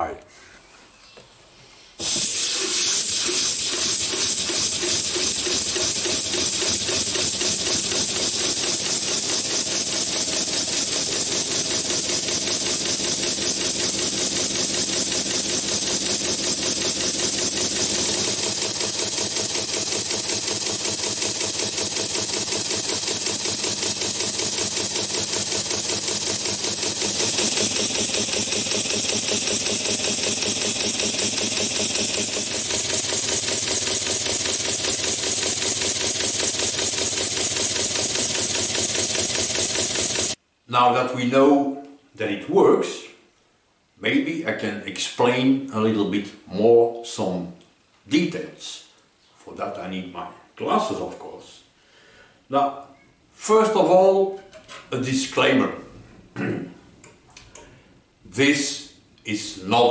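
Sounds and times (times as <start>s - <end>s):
beam engine chuffing: 2.0s - 40.4s.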